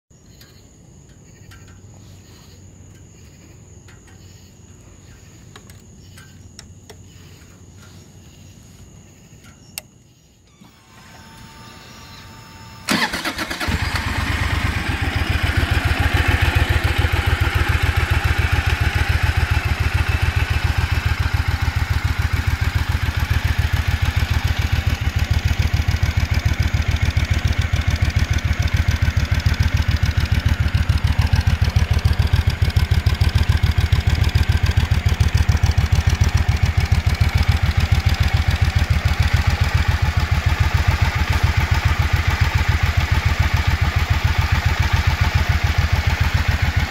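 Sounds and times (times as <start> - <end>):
motorcycle engine cranking: 9.8 - 46.9
motorcycle engine idling: 11.7 - 46.9.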